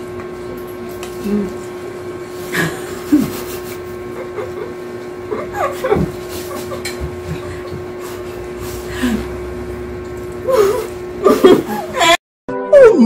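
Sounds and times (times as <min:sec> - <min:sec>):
room noise hum: 0:00.0 - 0:12.2.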